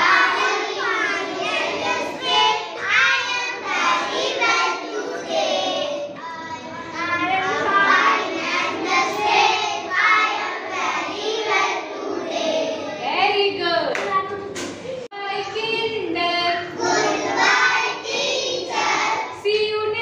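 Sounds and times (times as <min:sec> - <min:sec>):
young children singing: 0:00.0 - 0:13.0, 0:16.6 - 0:19.5.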